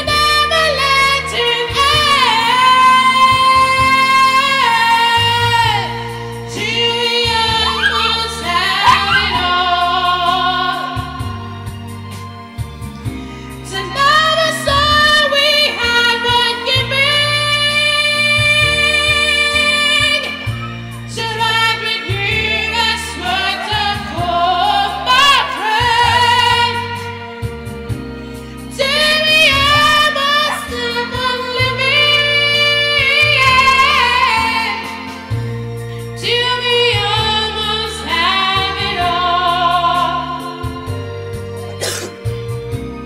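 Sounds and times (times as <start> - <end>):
sustained bass notes in music: 0.0 - 43.0
small dog howling: 7.6 - 9.8.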